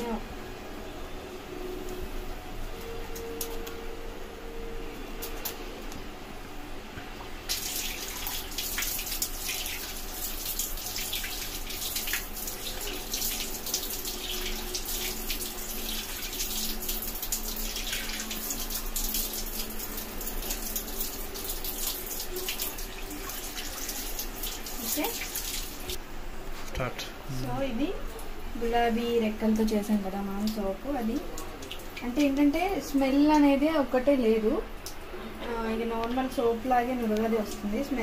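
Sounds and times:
tap water running into sink: 7.2 - 26.0.

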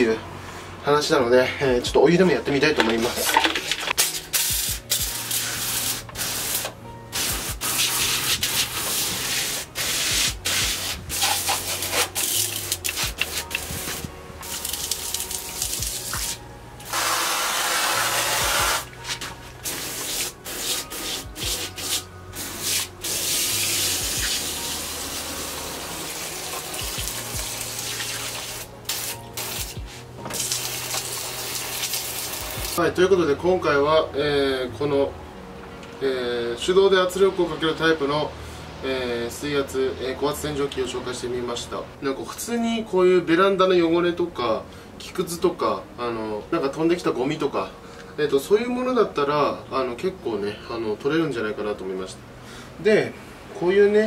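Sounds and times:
pressure washer spraying water: 4.0 - 32.8.

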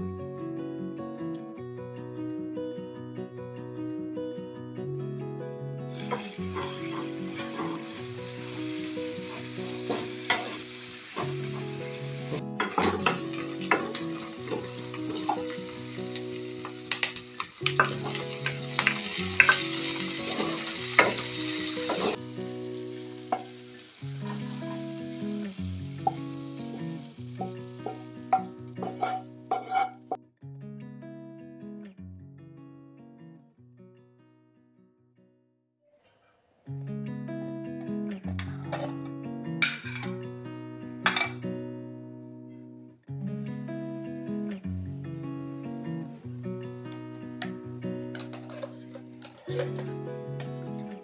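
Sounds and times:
acoustic guitar music: 0.0 - 35.3, 35.9 - 51.0
onions sizzling in oil: 5.9 - 30.0
wooden spatula stirring: 27.9 - 30.0.

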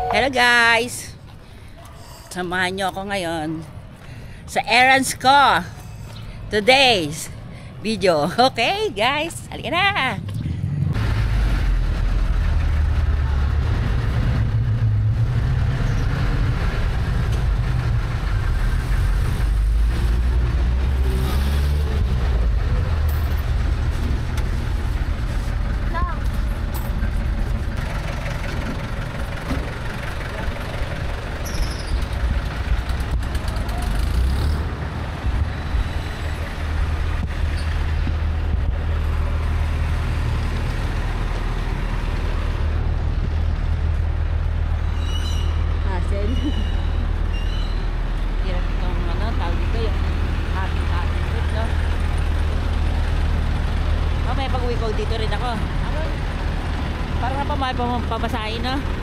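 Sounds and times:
low motor vehicle rumble: 5.4 - 59.0
diesel engine idling: 22.3 - 34.2, 47.9 - 59.0.

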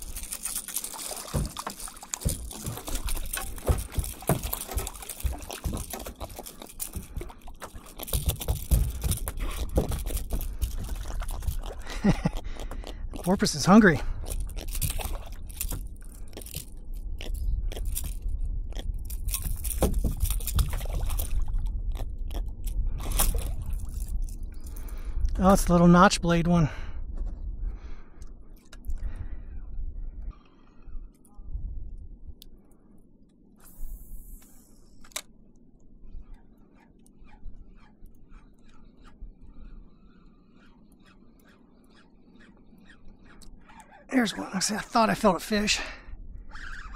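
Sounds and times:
clicks scrapes and rattles: 0.0 - 24.7
steady low rumble: 1.4 - 36.6
fishing line hissing off spool: 33.6 - 35.0.

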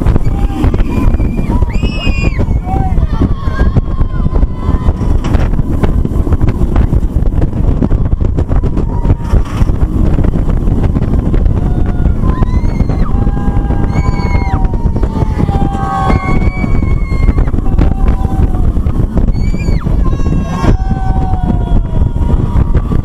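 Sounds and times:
roller coaster train rumbling: 0.0 - 23.0
wind blasting across microphone: 0.0 - 23.0
riders screaming: 0.1 - 5.2, 11.5 - 23.0.

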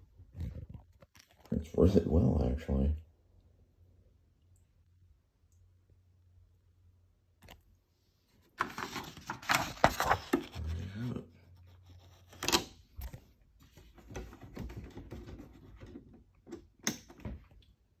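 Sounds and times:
paper rustling and crinkling: 8.3 - 16.1.

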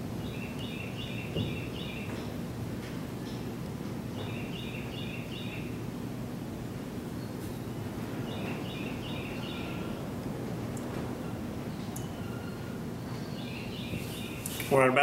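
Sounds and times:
bird chirping: 0.1 - 2.4, 4.1 - 5.9, 7.1 - 10.1, 11.2 - 14.8.

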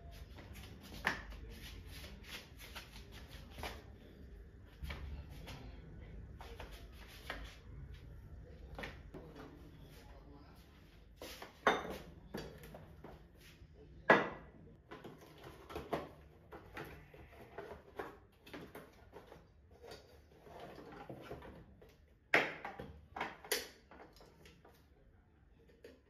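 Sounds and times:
objects knocking and clattering: 14.1 - 24.7.

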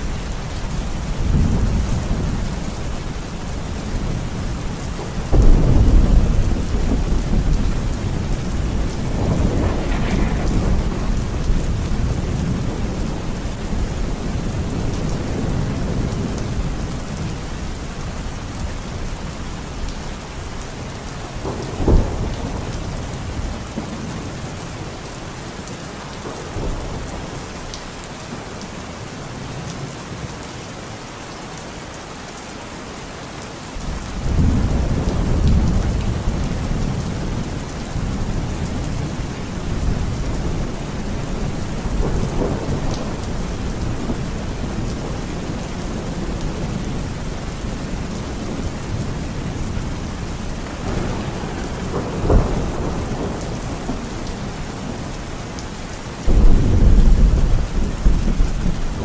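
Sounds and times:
thunder rumbling: 0.0 - 17.4, 21.3 - 24.5, 34.1 - 55.4, 56.2 - 59.0
heavy rain pouring: 0.0 - 59.0
sharp thunderclap: 5.3 - 13.3, 50.8 - 54.0, 56.3 - 59.0.

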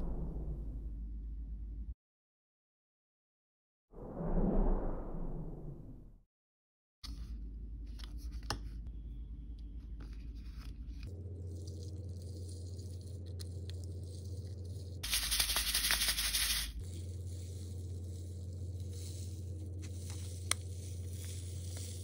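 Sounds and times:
steady low hum: 0.0 - 2.0, 7.1 - 22.0
plastic wrapper crinkling: 11.4 - 22.0
plastic toy ball clicking and rattling: 15.0 - 16.9.

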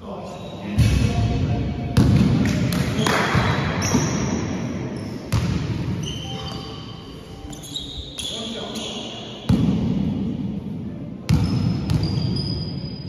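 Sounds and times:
sneakers squeaking on court: 3.7 - 9.6, 11.3 - 13.0.

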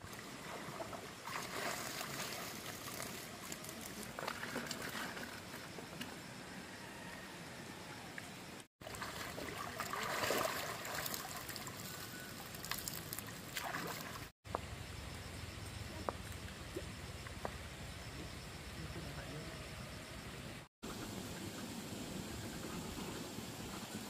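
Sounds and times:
water trickling and splashing: 0.0 - 6.0, 8.8 - 14.4.

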